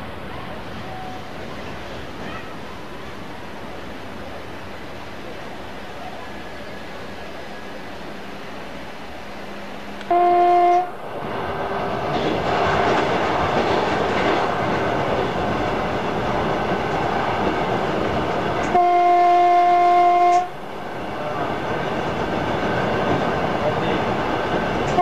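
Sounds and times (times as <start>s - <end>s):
train running noise: 0.0s - 25.0s
electric train horn: 10.0s - 11.0s, 18.6s - 20.6s.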